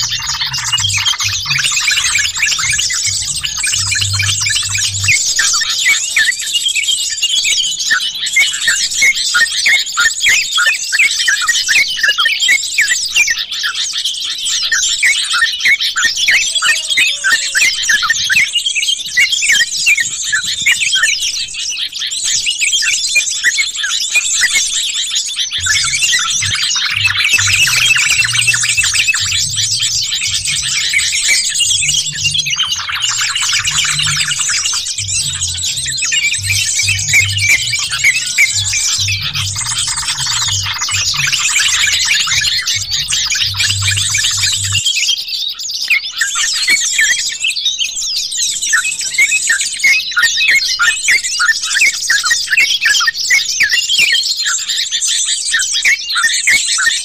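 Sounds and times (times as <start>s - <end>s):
low throbbing: 0.0s - 5.4s, 25.6s - 44.8s
birds chattering and chirping: 0.0s - 57.0s.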